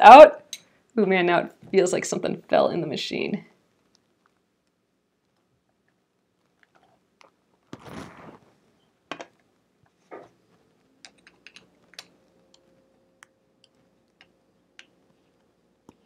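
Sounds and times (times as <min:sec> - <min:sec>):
scraping rustle: 0:07.8 - 0:08.5.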